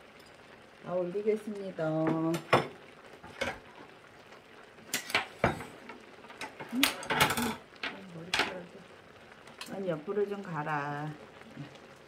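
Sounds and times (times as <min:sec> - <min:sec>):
tableware clinking on tabletop: 0:04.9 - 0:05.7, 0:06.8 - 0:08.5.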